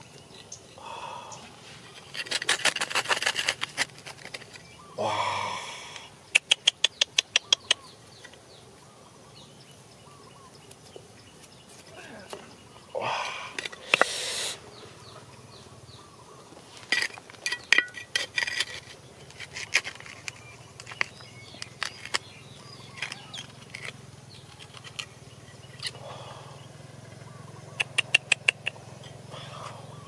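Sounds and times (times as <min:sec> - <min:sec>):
stone scraping through soil: 0:01.5 - 0:04.8, 0:16.7 - 0:26.0.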